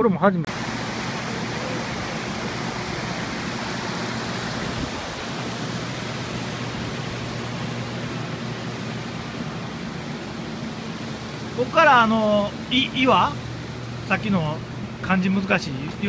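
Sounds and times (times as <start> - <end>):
fast-flowing water rushing: 0.5 - 16.0.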